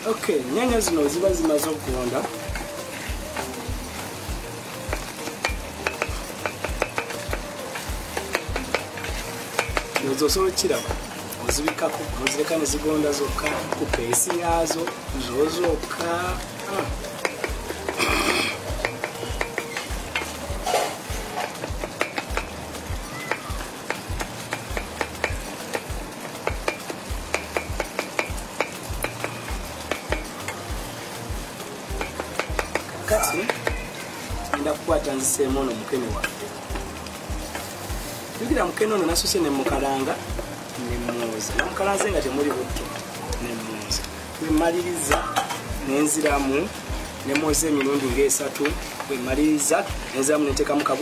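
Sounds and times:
tomatoes sizzling in a pan: 0.0 - 51.0
low regular thudding beat: 0.2 - 51.0
spoon knocking against a pan: 4.9 - 10.0, 18.7 - 22.6, 31.9 - 33.9
spoon clicking against pan: 4.9 - 10.1, 16.8 - 18.0, 18.8 - 20.4, 21.4 - 22.6, 23.2 - 30.6, 31.9 - 33.8.

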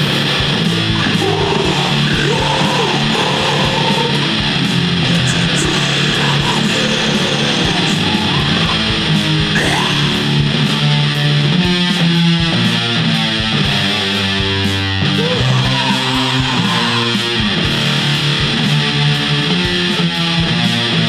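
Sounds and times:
distorted electric guitars and bass: 0.0 - 21.0.

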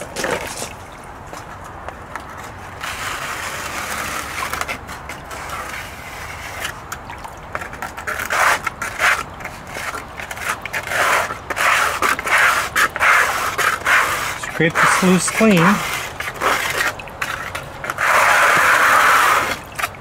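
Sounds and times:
plastic scraper scraping steel sluice: 2.8 - 20.0.

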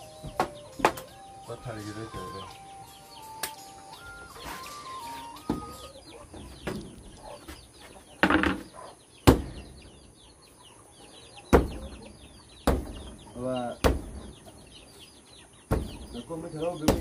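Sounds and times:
bird calling a pitched note: 0.0 - 6.1
faint high bird chirps: 0.0 - 17.0
sharp knocks: 0.2 - 1.1, 8.2 - 9.7, 11.5 - 12.0, 12.6 - 13.2, 13.8 - 14.4, 15.7 - 16.2.

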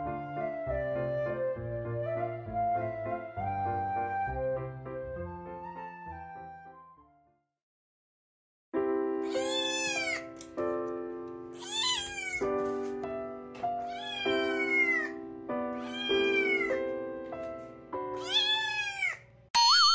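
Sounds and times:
kitten meowing: 9.2 - 10.3, 11.6 - 12.5, 13.8 - 15.2, 15.8 - 16.8, 18.2 - 19.2.

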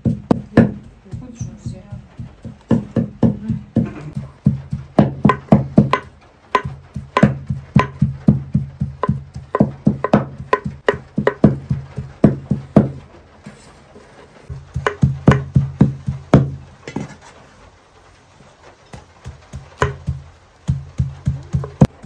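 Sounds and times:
knife chopping on wooden board: 2.0 - 13.0.

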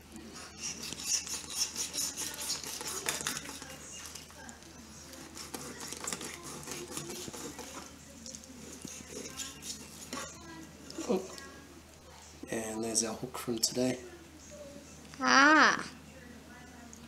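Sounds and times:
knife rasping through fish skin: 0.5 - 3.7, 5.3 - 7.9.

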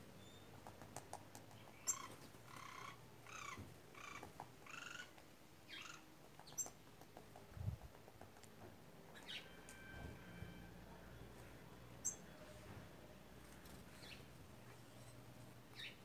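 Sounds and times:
woodpecker harsh calls: 1.8 - 6.7.

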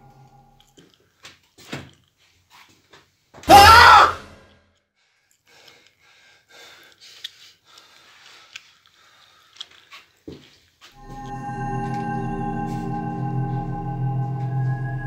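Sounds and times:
person screaming: 3.5 - 4.2.

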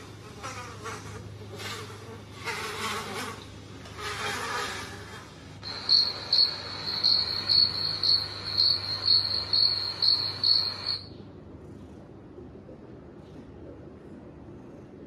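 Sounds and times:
recorded cricket chirping: 5.6 - 11.2.

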